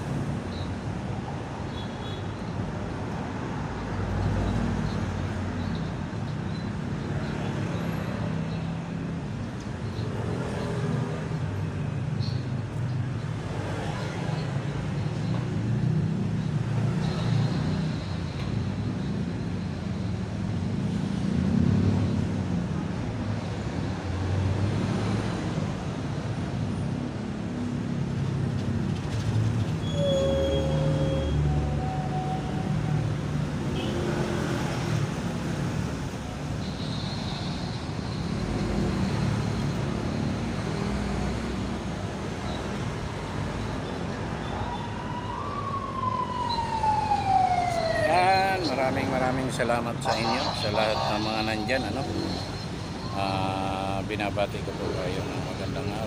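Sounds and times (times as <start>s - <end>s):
road traffic rumble: 0.0s - 56.0s
brief pitched tones: 29.8s - 33.0s.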